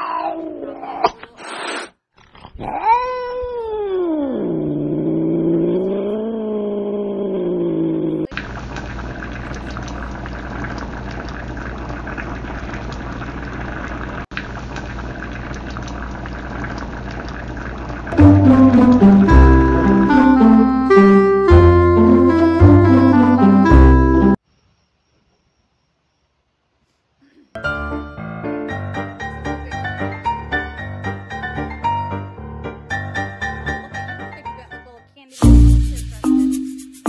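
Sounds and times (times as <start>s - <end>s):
cat yowling: 0.0s - 1.2s, 2.6s - 8.3s
music: 18.2s - 24.4s, 27.6s - 37.0s.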